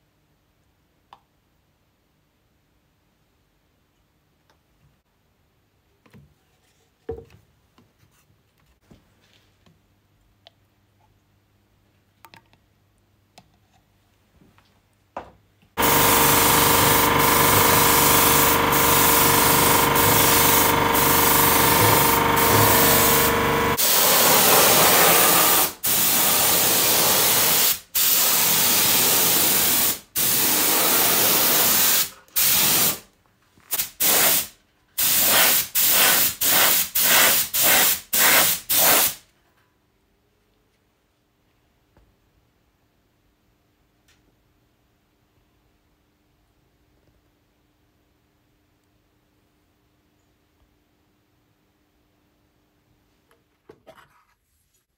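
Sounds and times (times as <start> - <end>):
steady hum: 15.8 - 23.8
paint spray gun hissing: 15.8 - 33.0, 33.7 - 39.2.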